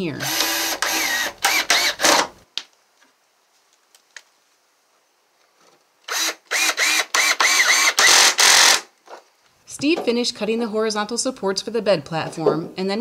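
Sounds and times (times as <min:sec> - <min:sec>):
cordless drill driving screws: 0:00.2 - 0:02.4, 0:06.1 - 0:08.9.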